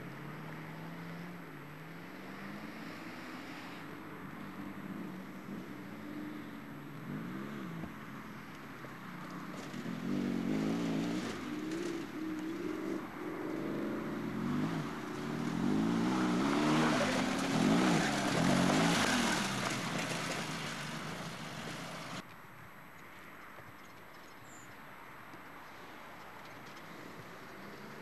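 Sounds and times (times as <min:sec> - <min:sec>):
off-road vehicle engine revving: 0:09.2 - 0:22.2.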